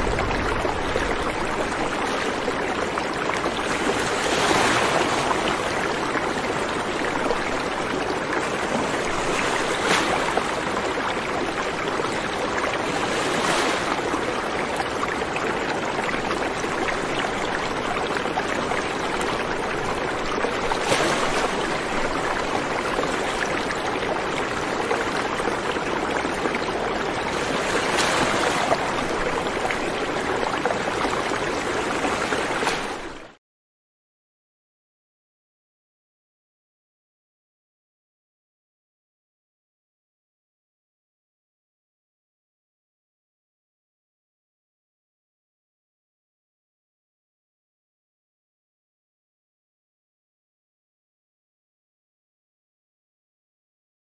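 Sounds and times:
rushing water: 0.0s - 33.4s.

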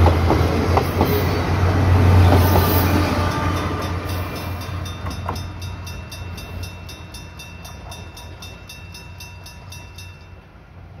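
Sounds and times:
diesel railcar rumble: 0.0s - 11.0s
level crossing bell ringing: 3.5s - 10.5s.

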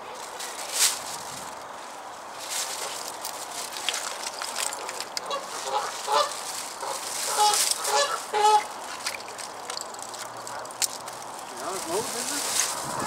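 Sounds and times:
geese honking: 5.2s - 9.0s.

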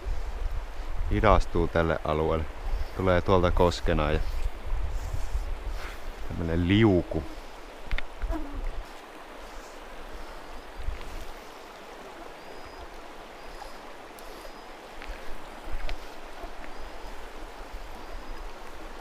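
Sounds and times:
river water rushing down rapids: 6.0s - 19.0s.

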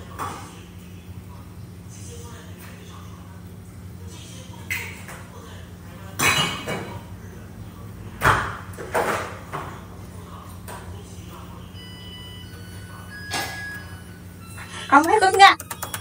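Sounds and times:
dishes and utensils clinking: 6.2s - 7.0s, 13.1s - 13.9s.

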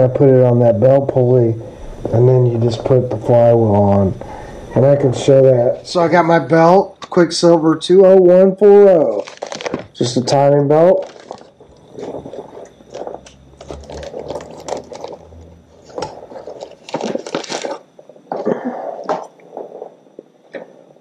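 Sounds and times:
plastic bag crinkling: 9.0s - 19.7s.

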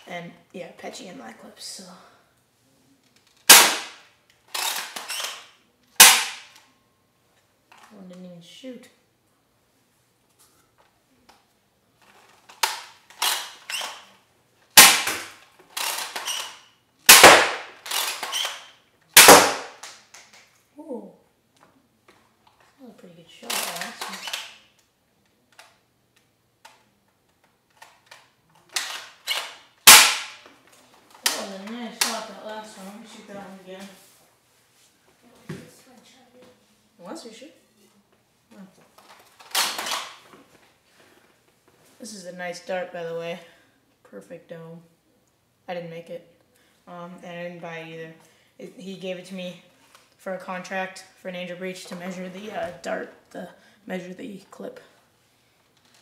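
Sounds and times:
foam dart blaster popping: 3.5s - 4.0s, 6.0s - 6.5s, 14.8s - 15.4s, 17.1s - 18.6s, 19.2s - 20.1s, 28.8s - 30.4s
toy blaster handling clicks: 4.5s - 5.5s, 17.8s - 18.7s, 23.5s - 24.9s, 39.4s - 40.2s.

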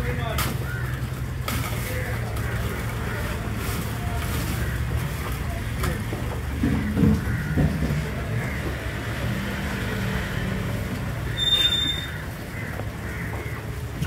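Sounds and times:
sharp high squeak: 11.3s - 12.2s.

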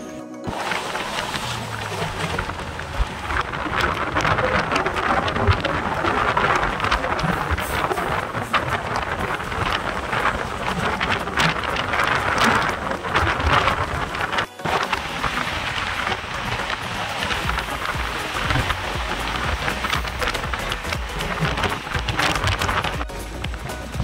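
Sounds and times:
air rushing over microphone: 0.5s - 24.0s.

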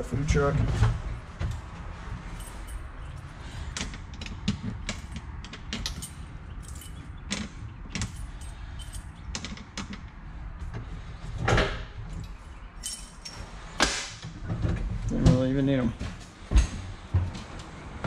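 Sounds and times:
keys jangling: 2.2s - 3.8s, 4.8s - 9.3s, 12.1s - 13.6s.

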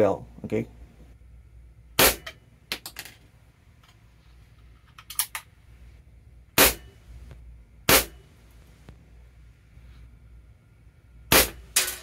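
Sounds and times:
air pistol shot: 2.0s - 2.2s, 6.6s - 6.9s, 7.9s - 8.2s, 11.3s - 11.8s.

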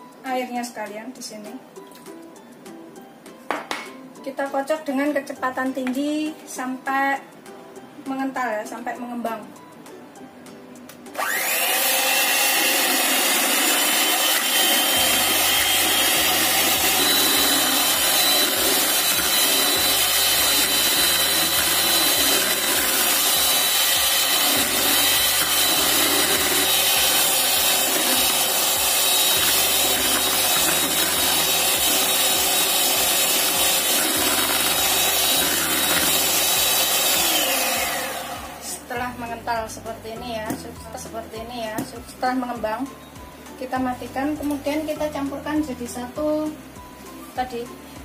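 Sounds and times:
electric hand mixer running: 11.2s - 38.8s.

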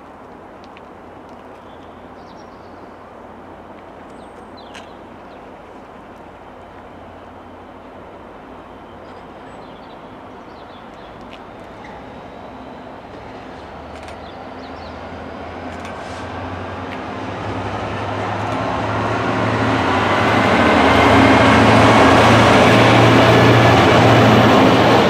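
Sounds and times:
diesel locomotive engine drone: 2.0s - 25.0s
train wheels rushing on rail: 7.9s - 25.0s.

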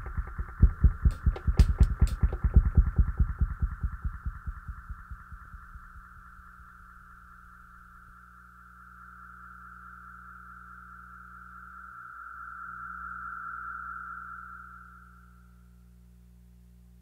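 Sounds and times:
pulsing electronic beat echoes: 0.0s - 6.5s
steady high electronic tone: 0.0s - 15.8s
low hum: 0.0s - 17.0s.

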